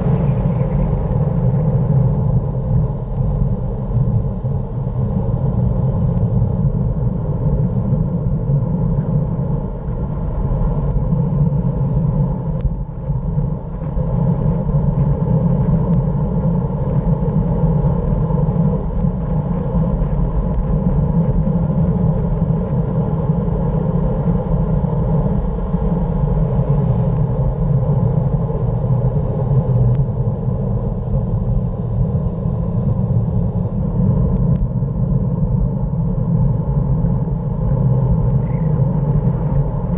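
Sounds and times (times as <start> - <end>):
wind rush: 0.0 - 39.9.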